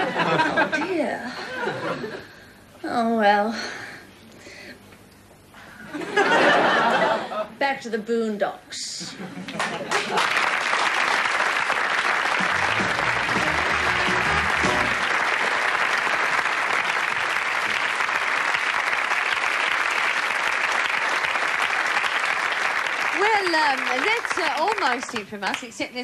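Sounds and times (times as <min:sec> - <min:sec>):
audience applauding: 0:09.5 - 0:25.7
low instrumental notes: 0:12.4 - 0:15.1.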